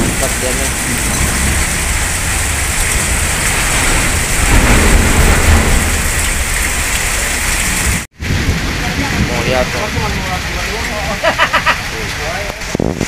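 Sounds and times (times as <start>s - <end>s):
deep low rumble: 0.0s - 10.0s
heavy rain splashing into water: 0.0s - 13.0s.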